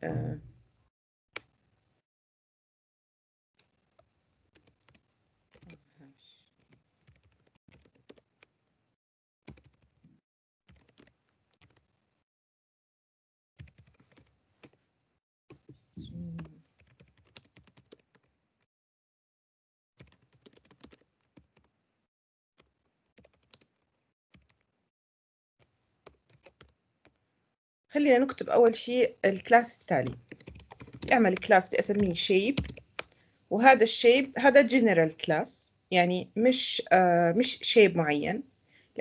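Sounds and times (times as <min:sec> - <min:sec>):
computer keyboard typing: 0:03.6 - 0:05.7, 0:06.7 - 0:08.5, 0:09.5 - 0:10.0, 0:10.7 - 0:11.8, 0:13.6 - 0:14.8, 0:16.4 - 0:18.3, 0:20.0 - 0:21.7, 0:22.6 - 0:24.6, 0:26.0 - 0:27.2, 0:29.9 - 0:33.2.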